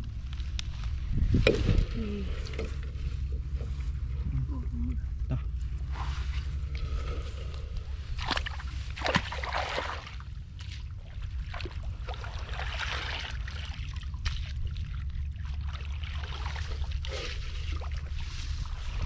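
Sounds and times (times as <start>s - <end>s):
low rumble: 0.0s - 19.0s
shallow water splashing: 5.9s - 19.0s.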